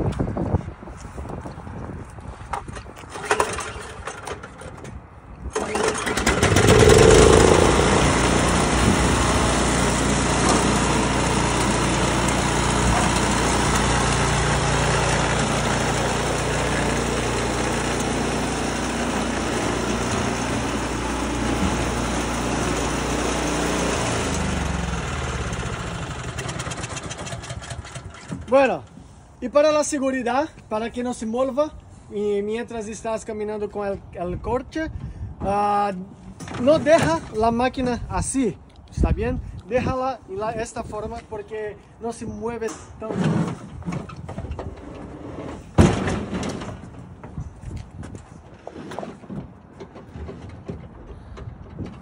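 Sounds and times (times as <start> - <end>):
snowblower engine running: 5.6 - 28.5.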